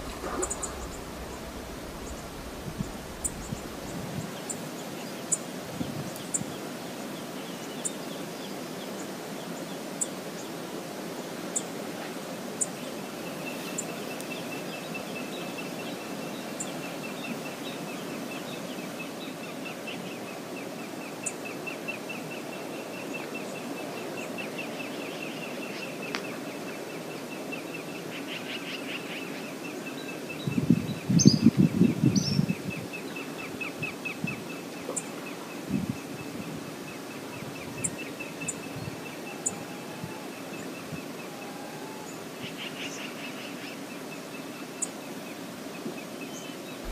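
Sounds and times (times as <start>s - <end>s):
brief low rumble: 0.0s - 4.4s
river rushing: 0.0s - 5.7s.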